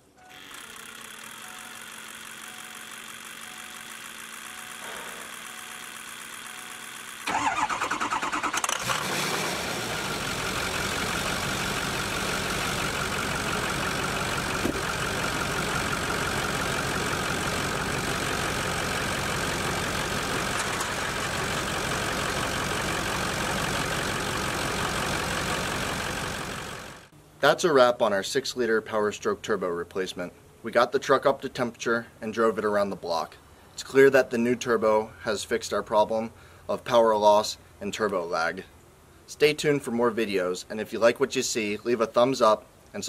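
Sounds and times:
diesel engine cranking and idling: 0.6 - 27.1.

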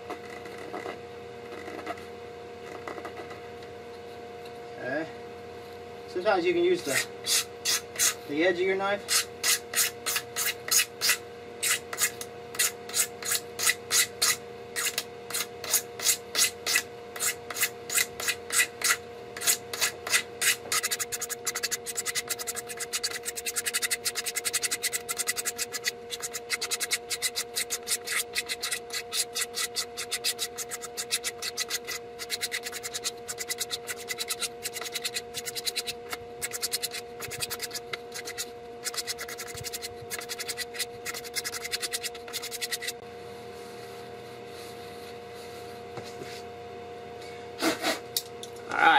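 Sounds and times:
knife blade scraping plastic: 9.1 - 43.0.

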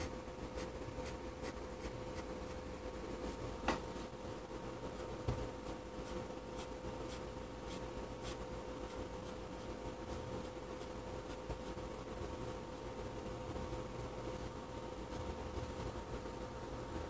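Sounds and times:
pen scratching on paper: 0.0 - 2.6, 4.9 - 11.9
faint steady hum: 0.0 - 17.0.

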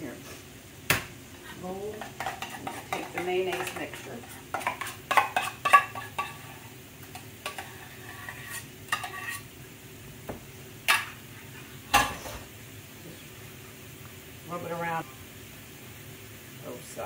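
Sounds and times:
onions sizzling in pan: 0.0 - 17.0
metal spoon scraping glass bowl: 7.5 - 9.4.

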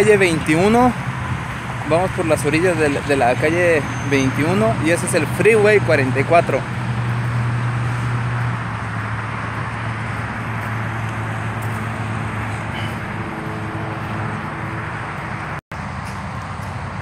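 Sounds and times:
freeway and street traffic: 0.0 - 17.0
low engine hum: 4.8 - 17.0.

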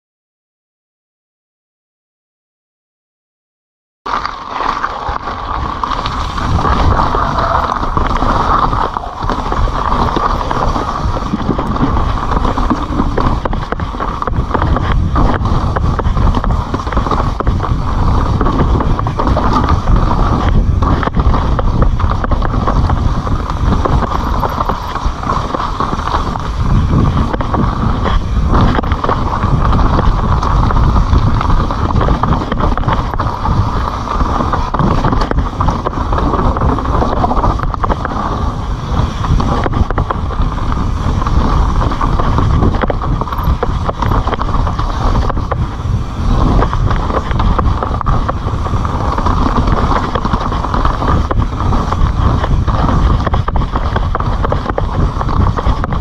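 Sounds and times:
bike rattling and knocking: 4.1 - 56.0
tyres rolling on gravel: 4.1 - 56.0
wind on microphone: 4.8 - 56.0.

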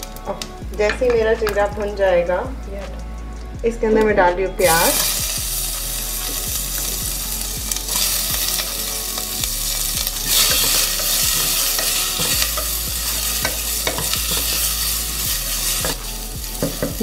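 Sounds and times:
onions sizzling in hot oil: 4.6 - 17.0
spatula scraping a pot: 7.8 - 17.0.

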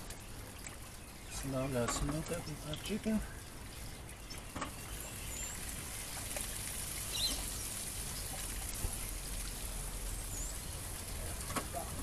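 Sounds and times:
steady hiss: 1.2 - 12.0
bird chirps: 7.1 - 8.3.

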